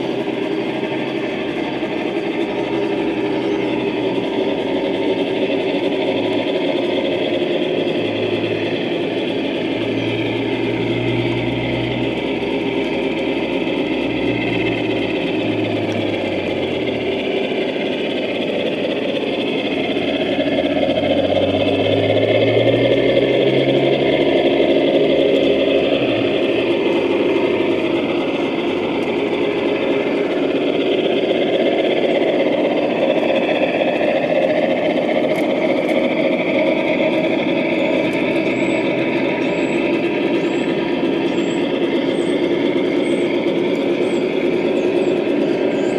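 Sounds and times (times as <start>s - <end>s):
model train diesel engine sound: 0.0s - 45.9s.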